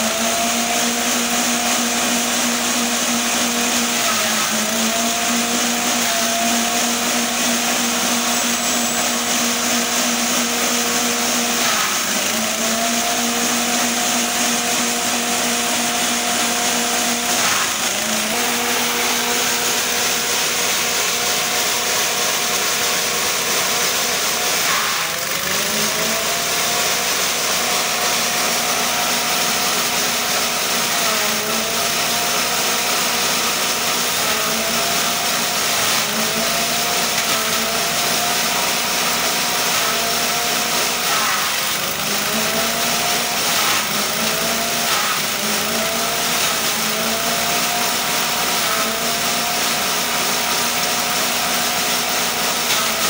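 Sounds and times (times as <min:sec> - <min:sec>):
humming whine of spinning cutter: 0:00.0 - 0:53.0
petrol engine running: 0:00.0 - 0:53.0.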